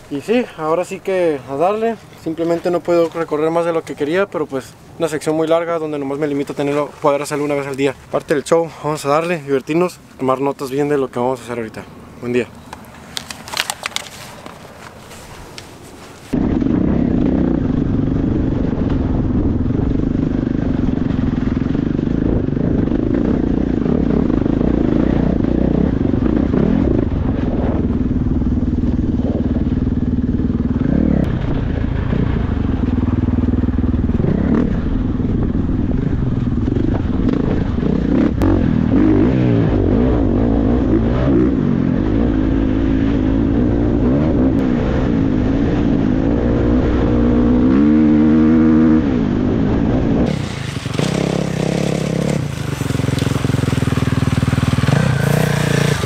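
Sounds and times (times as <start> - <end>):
motorcycle engine revving: 16.3 - 56.0.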